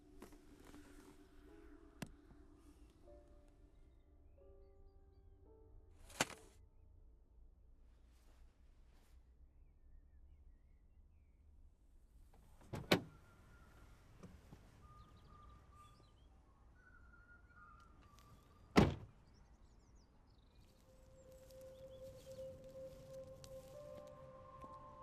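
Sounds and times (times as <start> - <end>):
soft held music tone: 0.0 - 6.6, 12.3 - 25.0
car door shutting: 12.6 - 13.2, 18.8 - 19.1
car door unlatching: 12.6 - 13.2
faint high chirps: 13.1 - 25.0.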